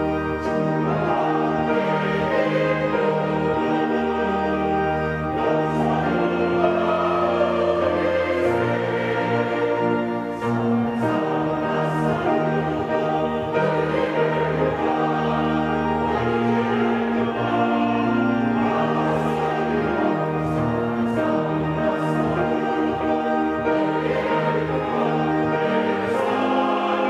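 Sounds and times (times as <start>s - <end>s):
choir singing a hymn: 0.0s - 27.0s
organ: 0.0s - 27.0s
piano: 0.0s - 27.0s.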